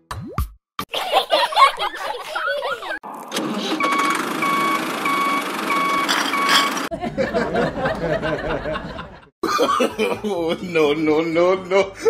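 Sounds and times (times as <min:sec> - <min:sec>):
truck backup alarm beeping: 0:03.8 - 0:06.9.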